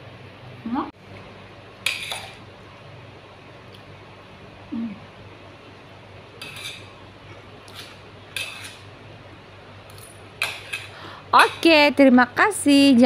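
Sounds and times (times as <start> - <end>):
metal spoon scraping a plate: 1.8 - 2.4, 6.4 - 7.0, 7.7 - 8.8, 10.0 - 11.6
person humming: 4.7 - 5.1.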